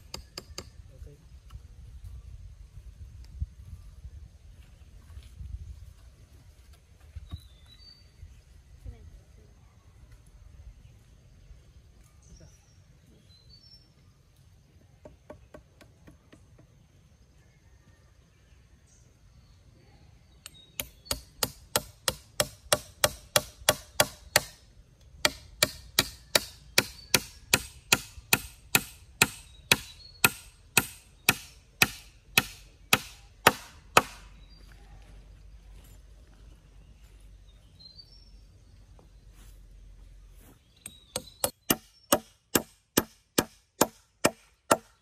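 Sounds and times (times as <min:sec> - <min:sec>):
hammer striking wood: 0:20.8 - 0:24.6, 0:25.2 - 0:34.3, 0:40.8 - 0:45.0.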